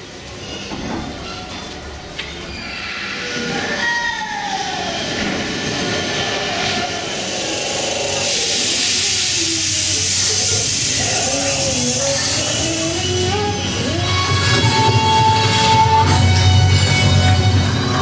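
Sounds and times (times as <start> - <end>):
loud hiss of air: 7.1 - 13.8.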